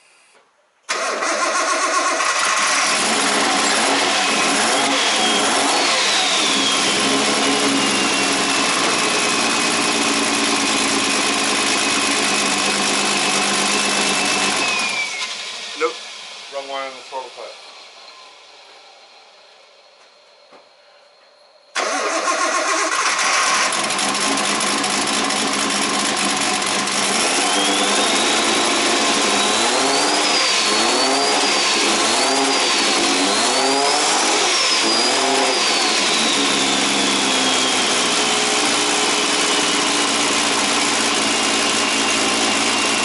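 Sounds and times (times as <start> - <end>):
car engine starting and revving: 0.9 - 16.6, 21.8 - 43.0
turbo whine: 24.2 - 43.0.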